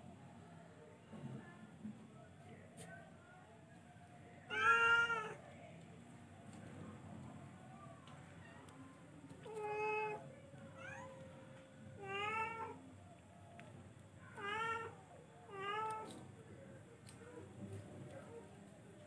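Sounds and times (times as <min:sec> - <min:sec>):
cat meowing: 0:04.5 - 0:05.4, 0:14.3 - 0:16.1.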